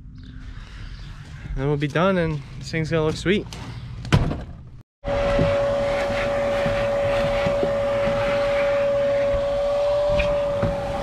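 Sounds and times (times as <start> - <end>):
handheld vacuum cleaner running: 5.0 - 11.0.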